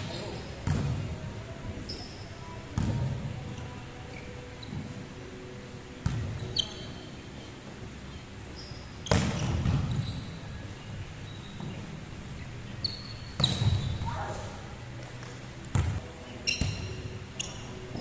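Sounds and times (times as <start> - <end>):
sneakers squeaking on wooden court: 0.0 - 1.0, 1.8 - 2.2, 2.8 - 5.0, 6.0 - 7.4, 8.1 - 10.6, 11.2 - 12.0, 12.8 - 14.2, 15.7 - 18.0.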